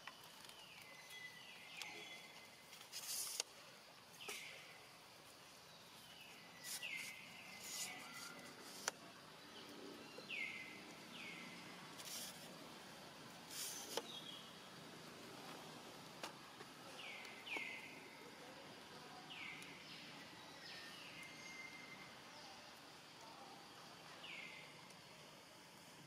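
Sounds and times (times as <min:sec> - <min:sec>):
faint clicks and rustles: 0:00.0 - 0:04.6
steady forest hiss: 0:00.0 - 0:26.0.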